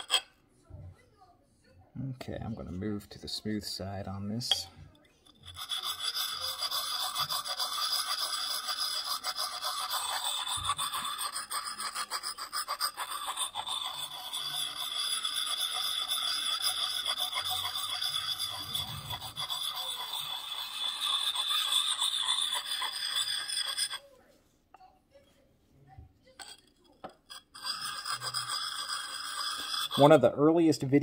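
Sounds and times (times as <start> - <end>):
sharpening stone scraping steel: 0.0 - 0.3, 4.4 - 24.1, 26.4 - 30.2.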